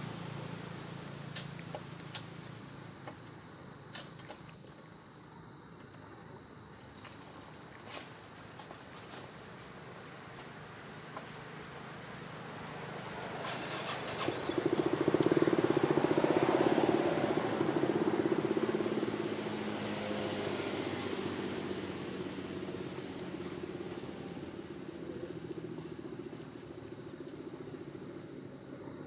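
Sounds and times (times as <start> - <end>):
high-pitched insect drone: 9.7 - 29.0
pulsing engine: 12.8 - 26.4.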